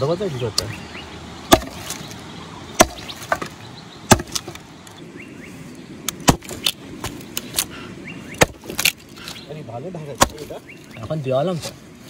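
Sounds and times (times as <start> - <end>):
heavy chopping strikes into wood: 1.5 - 2.0, 2.8 - 4.6, 6.2 - 7.2, 8.4 - 9.0, 10.1 - 10.6.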